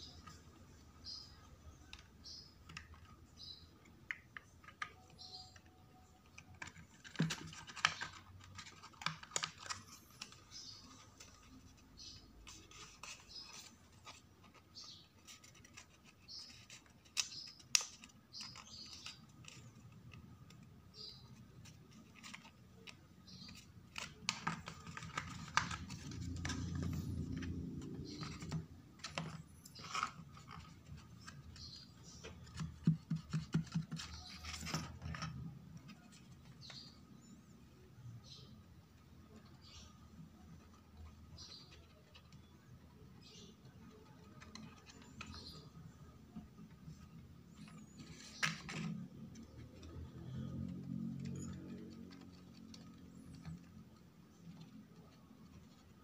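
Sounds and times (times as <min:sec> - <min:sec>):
paper rustling: 0:06.3 - 0:36.9
paper rubbing: 0:06.6 - 0:19.9
paper scraping: 0:21.0 - 0:36.9.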